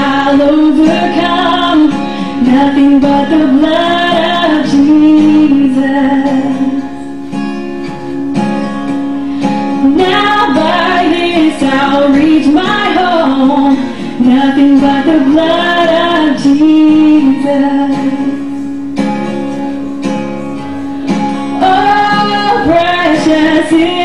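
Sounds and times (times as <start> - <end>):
woman singing into a microphone: 0.0 - 7.5, 8.6 - 18.8, 20.6 - 24.0
guitar accompaniment: 0.0 - 24.0.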